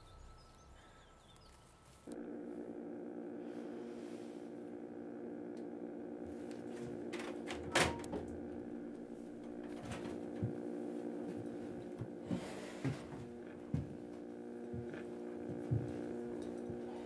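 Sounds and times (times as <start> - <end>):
low drone of held tones: 0.0 - 17.0
faint taps: 9.3 - 16.9.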